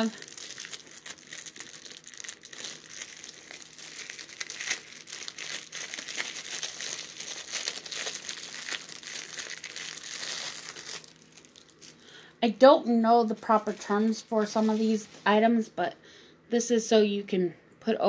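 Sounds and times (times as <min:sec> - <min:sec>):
plastic wrapping crinkling: 0:00.0 - 0:12.2, 0:13.3 - 0:15.3.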